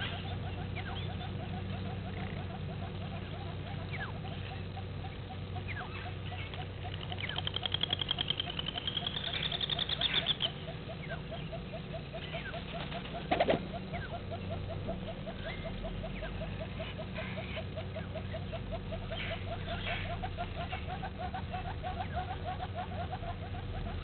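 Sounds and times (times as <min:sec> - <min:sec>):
bird singing high trill: 0:05.6 - 0:12.9.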